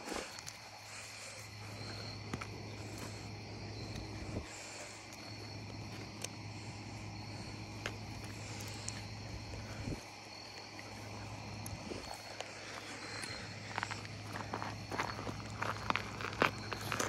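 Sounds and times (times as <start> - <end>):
crickets chirping: 0.0 - 17.0
low steady hum: 0.0 - 17.0.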